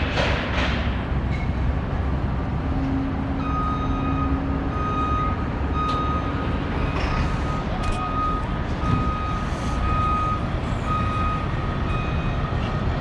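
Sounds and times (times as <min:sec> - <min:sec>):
low rumble of engines and traffic: 0:00.0 - 0:13.0
vehicle reversing alarm beeping: 0:03.4 - 0:13.0.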